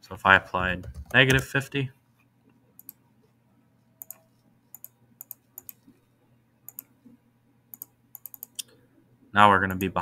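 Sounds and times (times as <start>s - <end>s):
computer mouse clicks: 2.8s - 3.0s, 4.0s - 6.0s, 6.7s - 7.0s, 7.7s - 8.8s.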